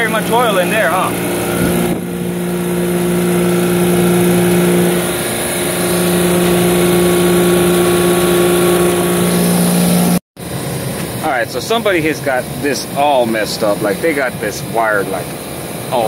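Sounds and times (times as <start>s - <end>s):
refrigeration compressor humming: 0.0s - 16.0s.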